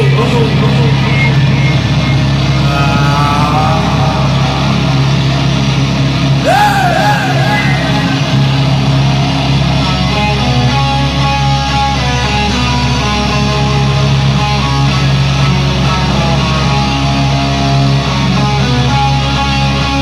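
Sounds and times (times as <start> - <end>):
electric guitar: 0.0 - 20.0
wavering high note: 6.4 - 10.9.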